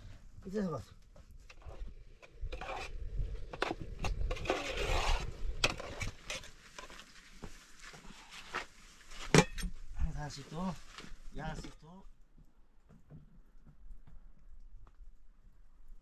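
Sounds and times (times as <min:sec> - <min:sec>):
scraping and stirring in a pot: 0:01.5 - 0:07.2.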